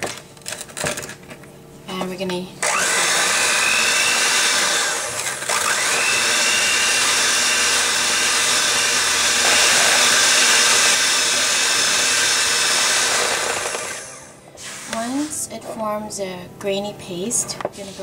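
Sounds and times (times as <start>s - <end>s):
electric hand mixer running: 2.6s - 14.4s.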